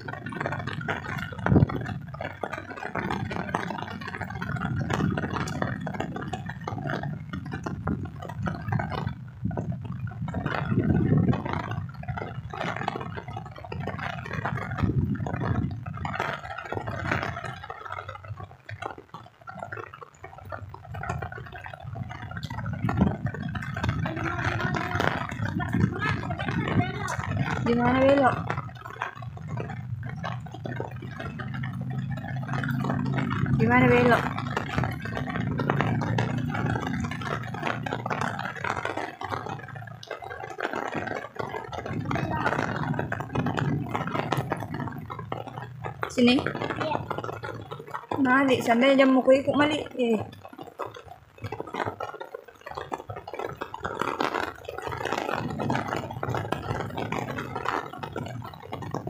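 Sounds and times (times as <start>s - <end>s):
wind buffeting microphone: 0.0s - 52.0s, 52.7s - 59.0s
falling rain hiss: 20.4s - 59.0s
small engine running: 30.4s - 39.5s, 41.7s - 44.6s.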